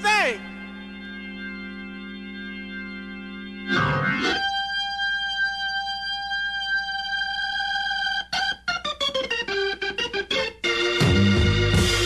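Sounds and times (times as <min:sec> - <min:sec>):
organ notes: 0:00.0 - 0:12.0.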